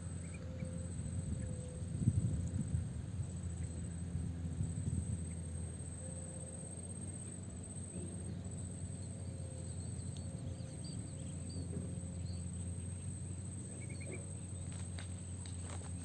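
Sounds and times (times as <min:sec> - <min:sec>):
bird chirps: 0:08.2 - 0:15.4.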